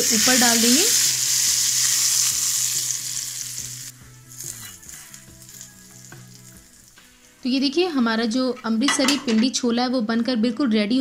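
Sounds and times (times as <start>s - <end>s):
hot oil sizzling: 0.0s - 8.2s.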